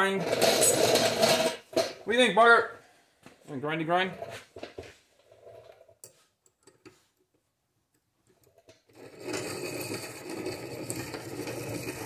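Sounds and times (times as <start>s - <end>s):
abrasive wheel grinding metal: 8.9s - 12.0s.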